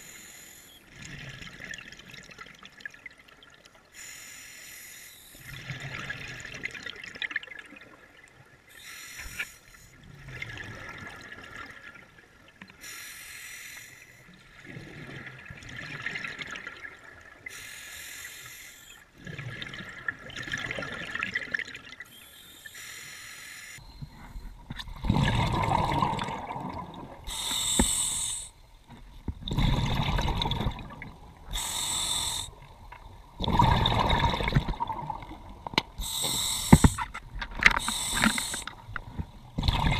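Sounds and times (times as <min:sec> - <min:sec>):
regulator inhale hiss: 0:00.0 - 0:00.8, 0:04.0 - 0:05.5, 0:08.7 - 0:10.0, 0:12.8 - 0:14.3, 0:17.5 - 0:19.0, 0:22.1 - 0:24.5, 0:27.3 - 0:28.6, 0:31.5 - 0:32.7, 0:36.0 - 0:37.1, 0:37.7 - 0:38.8
exhaled bubbles gushing: 0:19.2 - 0:22.0, 0:24.6 - 0:28.5, 0:29.4 - 0:37.0, 0:37.6 - 0:39.9.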